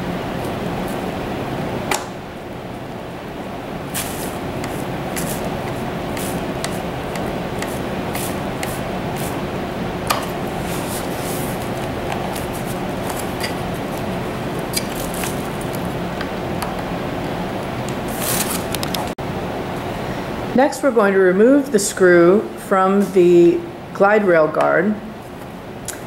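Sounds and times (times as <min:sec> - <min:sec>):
faint hum: 0:00.0 - 0:26.0
plastic bubble wrap rustling: 0:10.5 - 0:16.0, 0:18.1 - 0:18.7.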